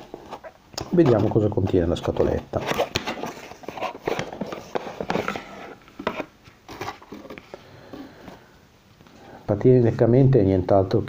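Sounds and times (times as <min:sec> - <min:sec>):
cardboard box rustling and crinkling: 0:02.6 - 0:07.4.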